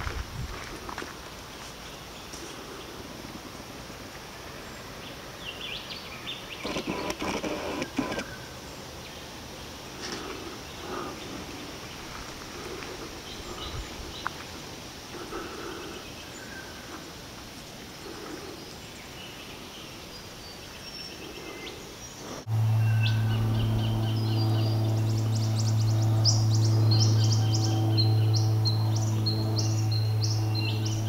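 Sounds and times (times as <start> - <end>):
birds chirping: 4.4 - 31.0
loud steady low hum: 22.2 - 31.0.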